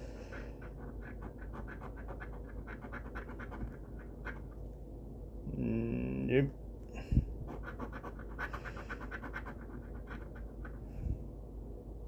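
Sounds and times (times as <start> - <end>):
coin scratching a ticket: 0.6 - 4.5, 7.5 - 10.8.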